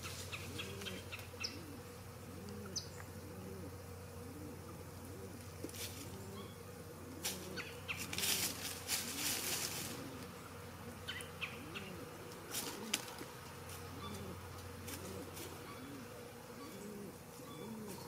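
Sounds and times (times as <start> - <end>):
pigeons cooing: 0.0 - 18.0
feathers rustling: 5.6 - 6.1, 7.2 - 10.4, 12.4 - 13.9.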